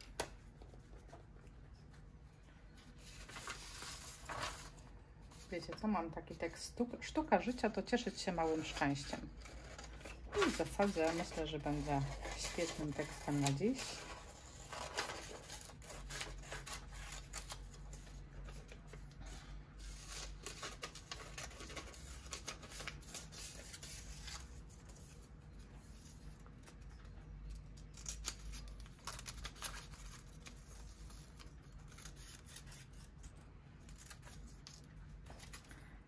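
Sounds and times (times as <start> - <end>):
scissors cutting paper: 8.5 - 17.7, 27.5 - 35.7.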